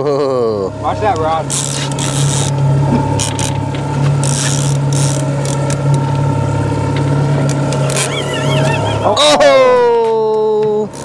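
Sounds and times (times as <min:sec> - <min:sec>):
boat motor drone: 0:00.0 - 0:11.0
fishing reel gears whirring: 0:00.9 - 0:06.2, 0:07.5 - 0:09.1.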